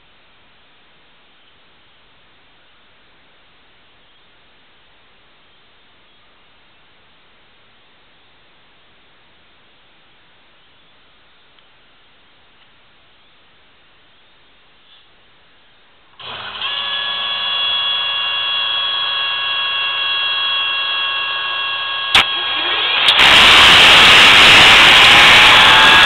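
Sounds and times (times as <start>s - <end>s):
motor roar: 16.2s - 26.0s
motor whine: 16.2s - 26.0s
sharp click: 22.1s - 22.3s.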